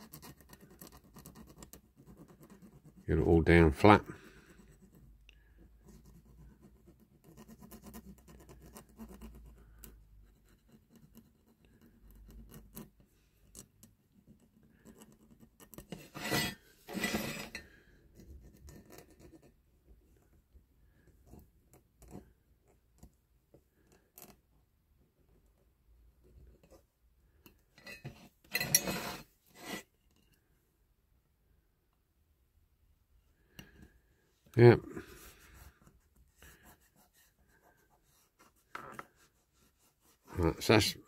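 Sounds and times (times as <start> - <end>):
stick rubbing tape on metal: 15.6 - 17.6
louder scrapes: 15.9 - 17.7, 28.0 - 29.9.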